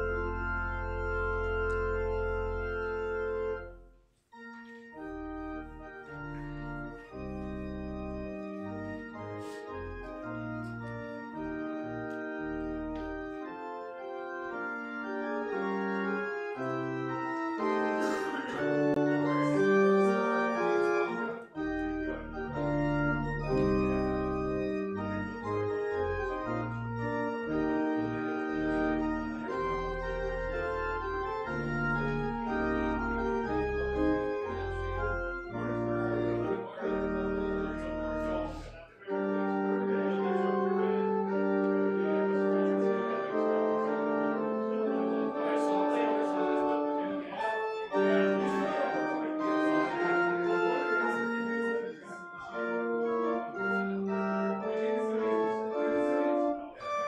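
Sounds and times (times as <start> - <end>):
low organ pedal bass: 0.0 - 57.0
organ chords: 0.0 - 57.0.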